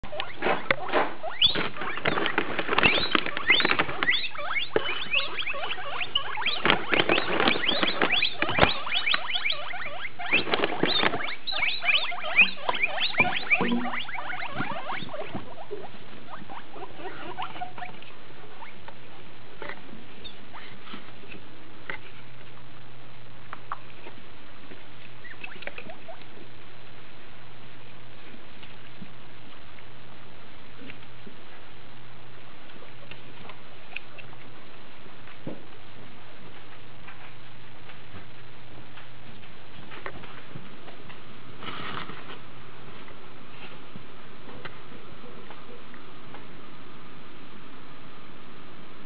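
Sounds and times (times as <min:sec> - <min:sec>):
guinea pigs wheeking: 0:00.0 - 0:22.6, 0:23.6 - 0:26.7, 0:32.3 - 0:35.7.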